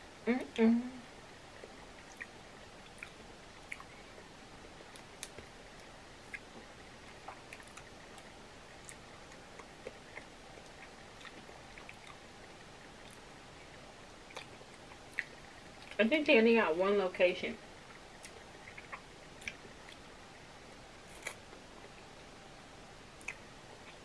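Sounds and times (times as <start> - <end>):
quiet chewing: 1.5 - 16.0, 17.8 - 20.1, 23.2 - 24.0.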